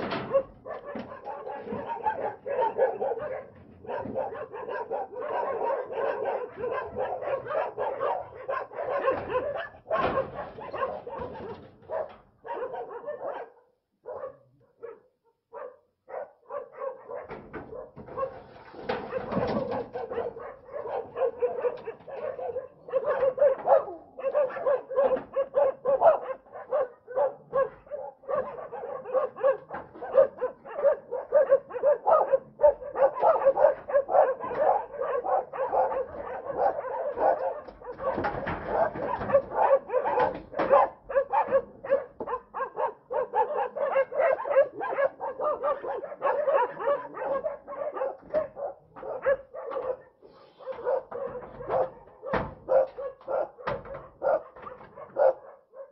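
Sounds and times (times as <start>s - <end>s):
dog barking rapidly: 0.0s - 55.9s.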